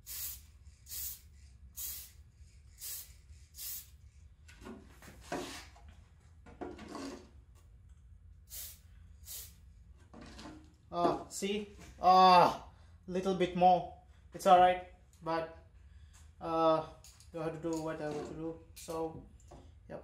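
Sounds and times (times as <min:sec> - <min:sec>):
spray paint can hissing: 0:00.0 - 0:04.0, 0:08.5 - 0:09.6.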